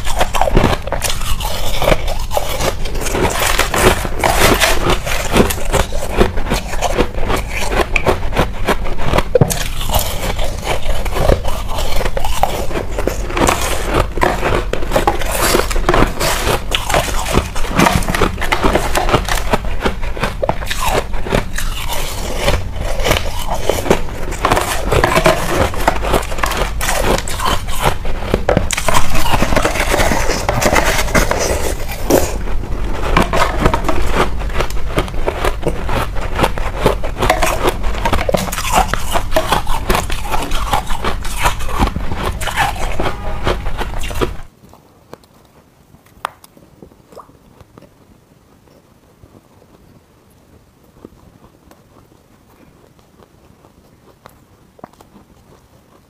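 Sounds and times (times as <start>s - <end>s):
ice being chewed: 0.0s - 56.0s.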